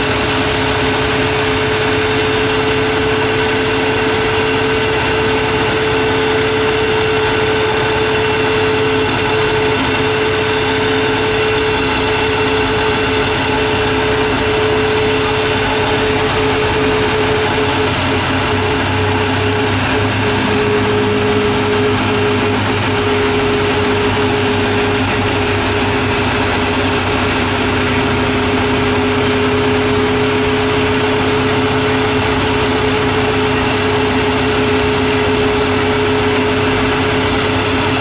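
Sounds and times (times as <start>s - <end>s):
car engine idling with whine: 0.0s - 38.0s.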